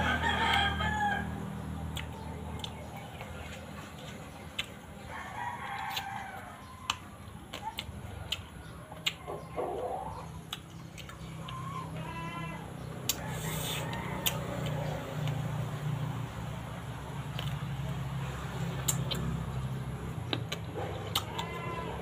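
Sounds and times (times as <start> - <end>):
rooster crowing: 0.0 - 1.5, 5.1 - 7.1, 13.2 - 15.0, 21.2 - 22.0
eating clicks: 10.4 - 11.6, 18.6 - 21.6.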